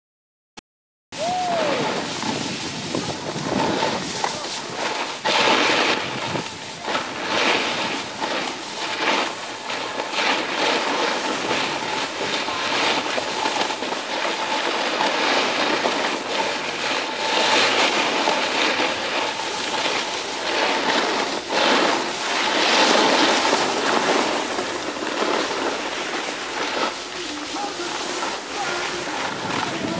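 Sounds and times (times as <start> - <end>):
snowboard scraping over snow: 1.2 - 29.9.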